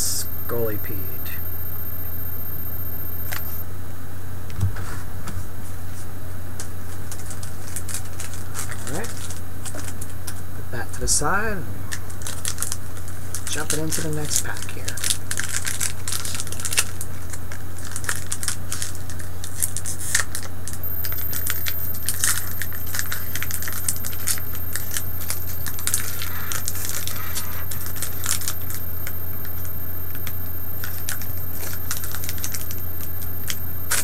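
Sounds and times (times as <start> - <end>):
steady low hum: 0.0 - 4.4, 20.8 - 34.0.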